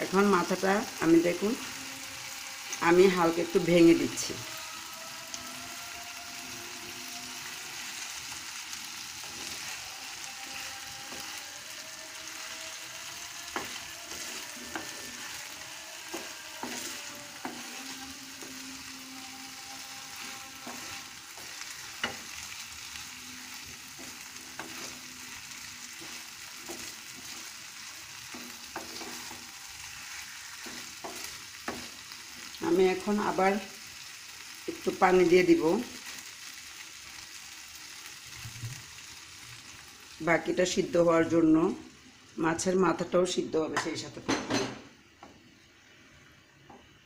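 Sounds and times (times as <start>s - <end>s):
food sizzling in a pan: 0.0s - 47.0s
spatula tapping and scraping pan: 16.1s - 18.6s, 28.3s - 29.5s, 30.6s - 32.0s.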